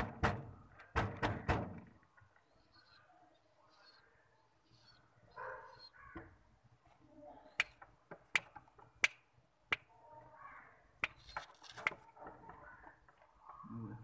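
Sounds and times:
sharp snaps: 0:07.6 - 0:09.9, 0:11.0 - 0:12.0.

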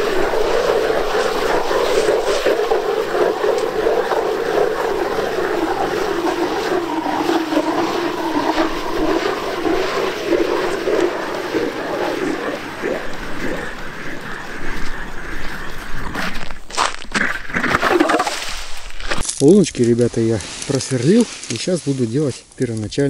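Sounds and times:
ice auger grinding through ice: 0:00.0 - 0:13.5, 0:16.1 - 0:19.2.

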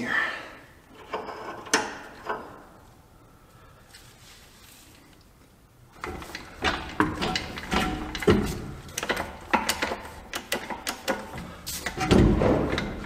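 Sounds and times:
metal clanks and knocks: 0:00.9 - 0:02.7, 0:06.0 - 0:13.0.

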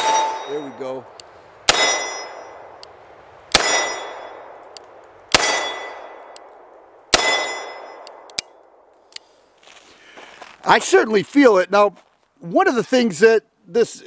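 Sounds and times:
steel target ringing clang: 0:00.0 - 0:01.0, 0:01.7 - 0:02.7, 0:03.5 - 0:04.5, 0:05.4 - 0:06.3, 0:07.1 - 0:08.2.

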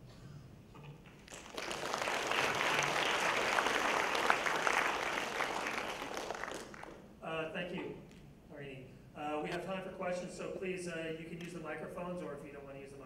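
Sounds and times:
audience applauding: 0:01.2 - 0:07.1.

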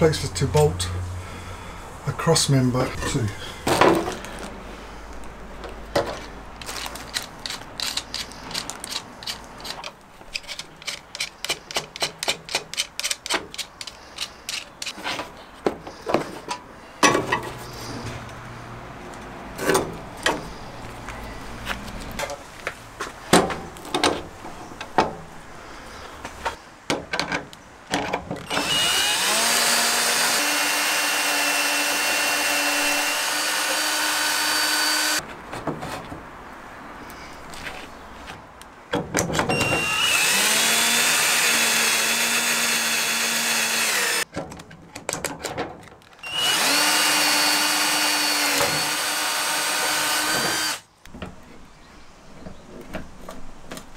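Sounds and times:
power drill boring into wood: 0:28.4 - 0:35.2, 0:39.5 - 0:44.2, 0:46.2 - 0:50.8.

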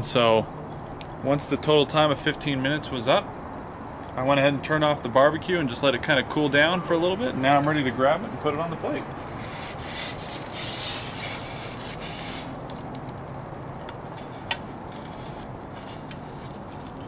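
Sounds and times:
wood scraping on metal grate: 0:08.8 - 0:17.0.

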